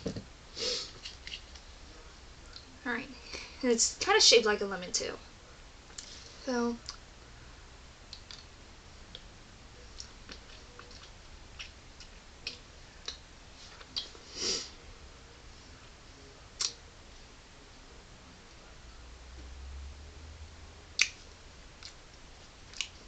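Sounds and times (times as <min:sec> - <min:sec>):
mouth noises sucking hard candy: 0:13.8 - 0:14.8.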